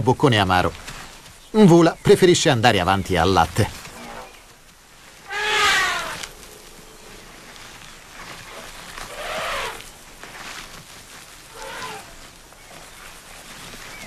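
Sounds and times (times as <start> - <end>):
elephant calf calling: 5.2 - 7.0, 8.5 - 9.9, 11.5 - 12.2.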